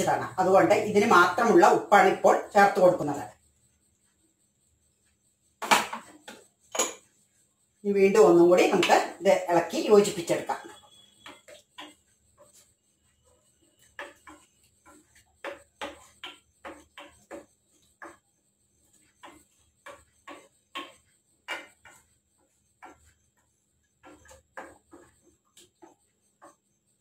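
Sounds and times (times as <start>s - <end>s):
spoon scraping a pan: 5.6s - 7.3s, 8.1s - 27.0s.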